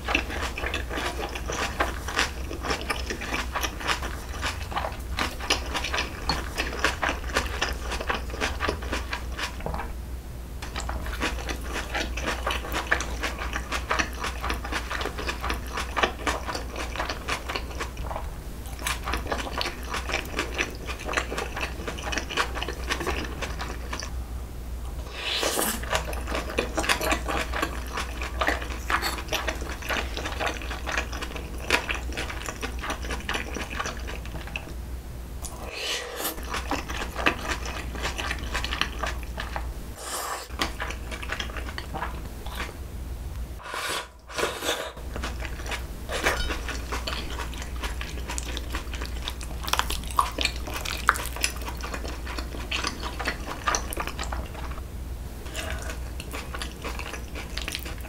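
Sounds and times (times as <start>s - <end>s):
wet chewing: 0.0s - 9.8s, 10.6s - 24.1s, 25.1s - 34.7s, 35.4s - 39.7s, 40.3s - 42.8s, 45.0s - 54.8s, 55.5s - 58.0s
spoon and chopsticks clinking bowls: 46.2s - 46.8s.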